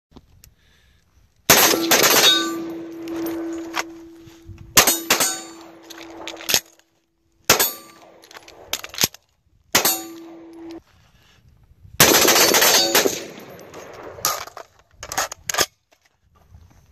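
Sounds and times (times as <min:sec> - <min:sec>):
pistol shots: 0:01.5 - 0:04.2, 0:04.8 - 0:06.6, 0:07.5 - 0:08.9, 0:09.8 - 0:10.8, 0:12.0 - 0:14.4
rifle shots: 0:01.5 - 0:04.2, 0:04.8 - 0:06.7, 0:07.5 - 0:09.1, 0:09.7 - 0:10.8, 0:12.0 - 0:14.5
steel targets ringing: 0:01.5 - 0:06.5, 0:07.5 - 0:08.2, 0:09.8 - 0:10.8.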